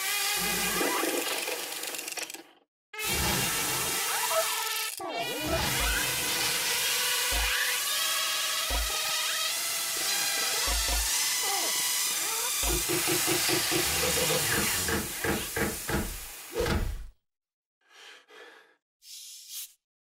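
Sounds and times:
cartoon water jets hissing: 0:03.0 - 0:16.8.

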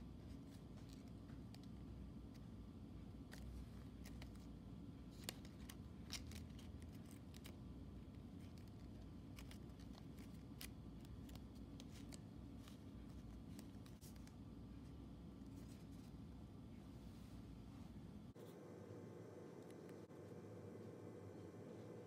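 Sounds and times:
low steady hum: 0:00.0 - 0:22.0
paper crinkling as folded: 0:03.2 - 0:14.4.

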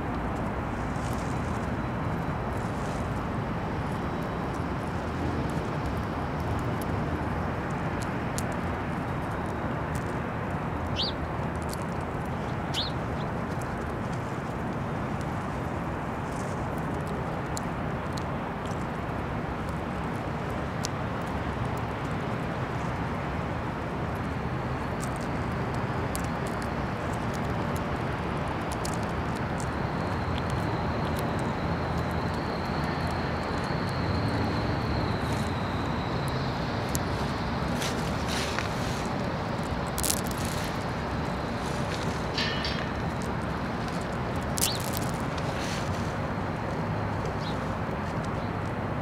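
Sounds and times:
rushing outdoor background noise: 0:00.0 - 0:49.0
sharp ticks: 0:39.6 - 0:45.4.

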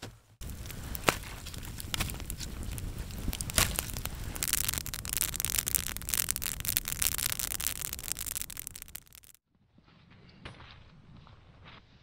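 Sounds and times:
campfire crackling and popping: 0:00.4 - 0:09.4
hiss of burning: 0:00.4 - 0:09.4.

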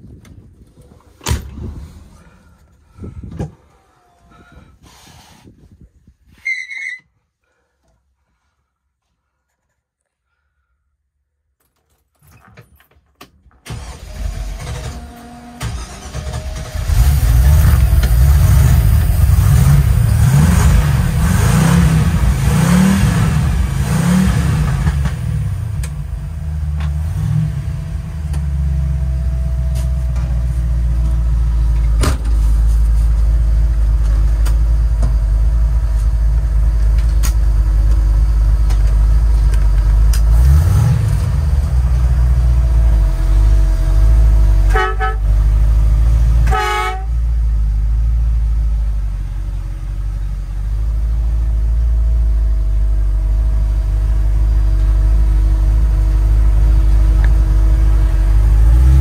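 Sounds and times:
car engine cranking: 0:13.6 - 0:26.0
car engine revving: 0:15.6 - 0:29.3, 0:40.1 - 0:45.1, 0:55.6 - 0:59.0
car engine idling: 0:24.6 - 0:59.0.

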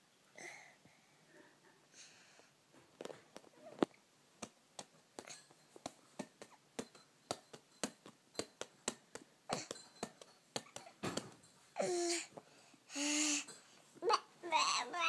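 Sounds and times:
hands slapping a ball: 0:04.4 - 0:11.4.

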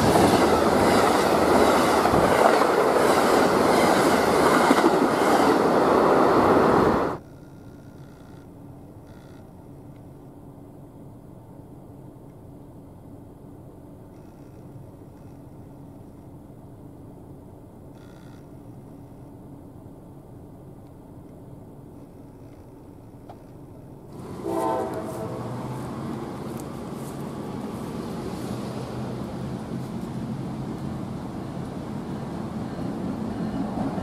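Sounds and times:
diesel locomotive rumbling: 0:00.0 - 0:07.2, 0:24.1 - 0:34.0
locomotive horn blast: 0:24.1 - 0:27.1.

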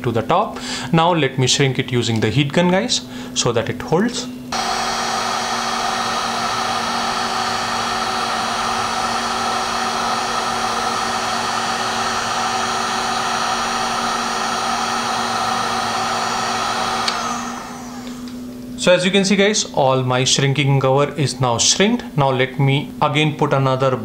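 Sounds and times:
heat gun blowing: 0:04.5 - 0:18.7
heat gun switch click: 0:17.0 - 0:17.3.

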